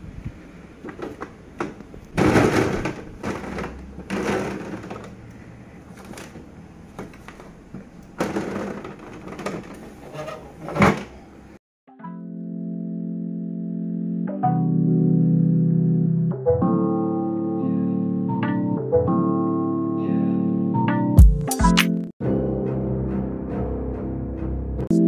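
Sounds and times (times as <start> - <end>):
plastic bins knocking: 0.8 - 5.2, 6.0 - 9.8.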